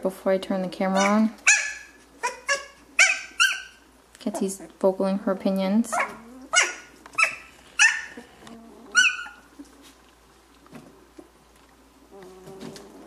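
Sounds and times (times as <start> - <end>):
puppy yelping: 1.0 - 4.6, 5.9 - 9.5.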